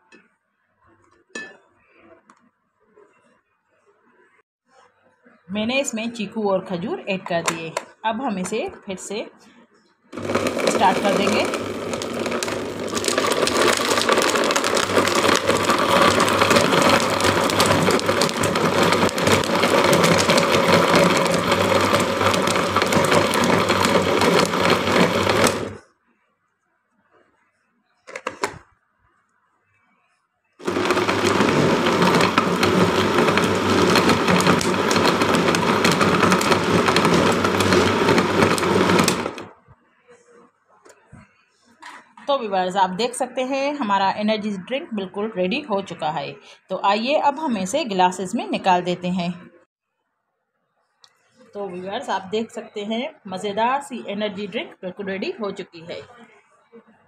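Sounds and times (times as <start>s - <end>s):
blender motor running: 10.2s - 25.8s, 30.6s - 39.5s.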